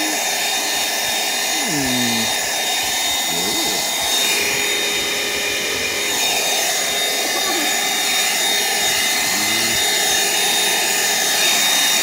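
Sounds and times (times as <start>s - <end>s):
handheld vacuum cleaner running: 0.0s - 12.0s.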